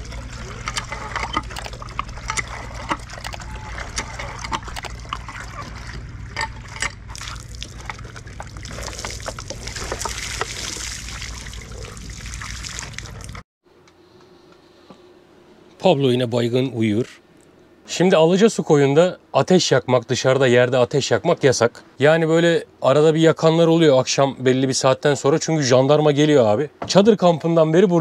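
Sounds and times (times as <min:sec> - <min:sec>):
low pump hum: 0:00.0 - 0:13.4
water pouring and splashing: 0:00.0 - 0:13.4.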